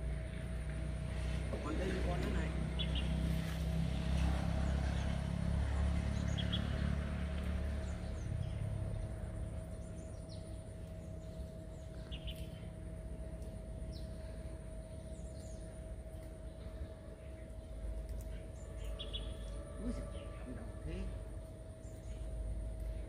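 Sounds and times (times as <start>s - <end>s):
faint steady hum: 0.0s - 23.0s
low rumble: 0.0s - 23.0s
bird chirps: 9.7s - 12.7s, 18.1s - 20.3s.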